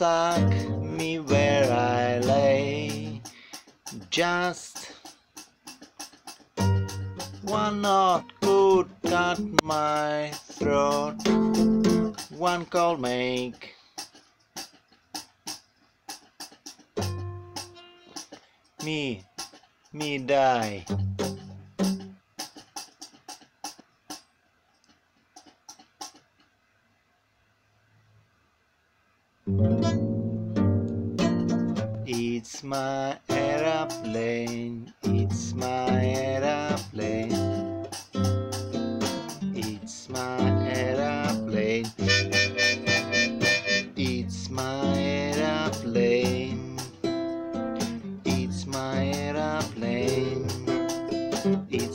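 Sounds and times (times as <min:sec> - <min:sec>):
person singing: 0:00.0 - 0:05.1, 0:07.4 - 0:13.8, 0:32.0 - 0:37.7, 0:39.4 - 0:47.1, 0:48.2 - 0:51.9
acoustic guitar muted strums: 0:00.0 - 0:24.4, 0:25.2 - 0:26.5, 0:29.5 - 0:51.9
harmonica melody: 0:42.0 - 0:44.1.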